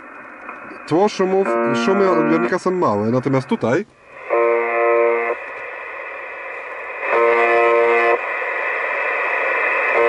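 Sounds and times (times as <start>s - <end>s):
receiver hiss: 0.0s - 10.0s
harsh radio buzz tone: 1.2s - 3.7s, 7.1s - 8.2s.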